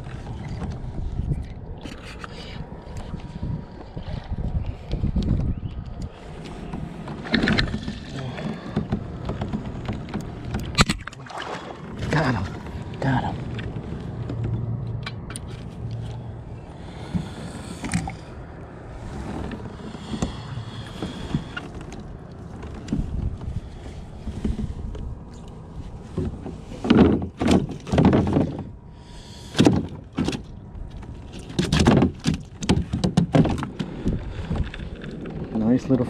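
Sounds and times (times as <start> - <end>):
knocks and thumps: 7.2 - 11.1, 26.1 - 28.7, 29.5 - 30.4, 31.5 - 33.9.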